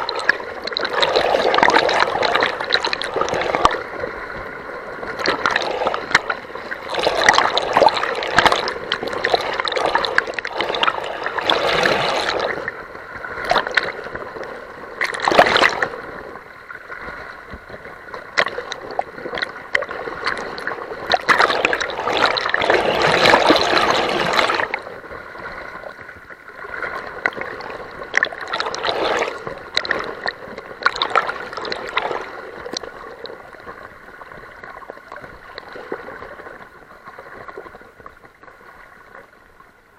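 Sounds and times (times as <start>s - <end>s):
river water rushing and splashing: 0.0s - 14.2s, 14.9s - 34.2s
water gurgling: 0.0s - 39.9s.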